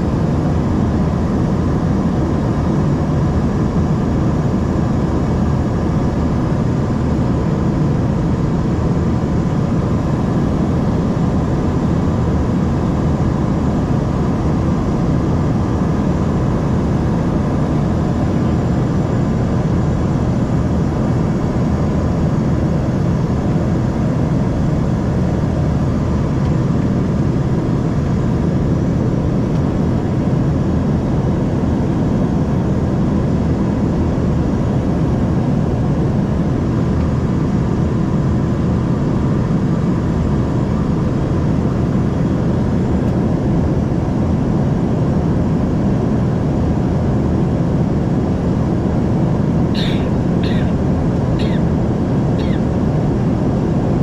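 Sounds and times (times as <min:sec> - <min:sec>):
airplane cabin engine drone: 0:00.0 - 0:54.0
airflow: 0:49.8 - 0:53.0.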